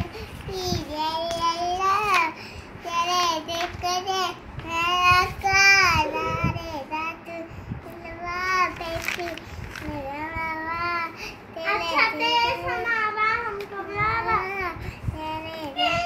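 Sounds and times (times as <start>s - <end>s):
girl singing unaccompanied: 0.0s - 16.0s
singer breathing: 2.4s - 2.8s, 11.1s - 11.5s, 14.8s - 15.2s.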